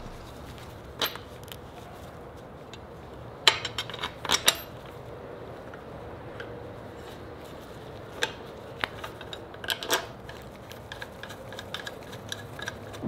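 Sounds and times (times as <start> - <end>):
clicks and clinks of metal parts: 3.5 - 4.9, 8.2 - 13.0.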